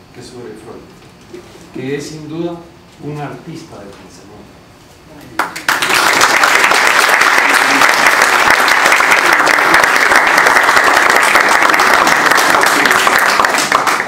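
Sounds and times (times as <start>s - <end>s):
people applauding: 5.4s - 14.0s.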